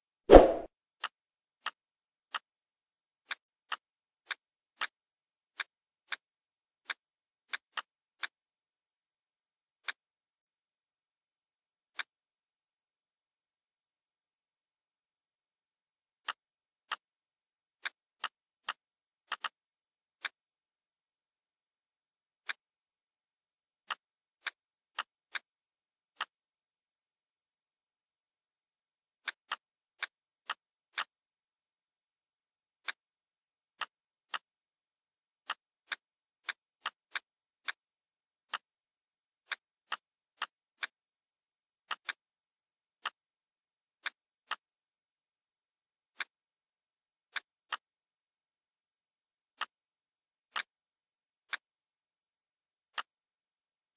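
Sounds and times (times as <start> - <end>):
computer mouse clicks: 3.2 - 5.0, 5.6 - 6.2, 11.9 - 12.1, 17.8 - 19.6, 22.4 - 22.6, 29.2 - 31.1, 35.5 - 37.8, 39.5 - 41.0, 41.9 - 42.2, 49.6 - 49.8, 50.5 - 50.7, 52.9 - 53.1.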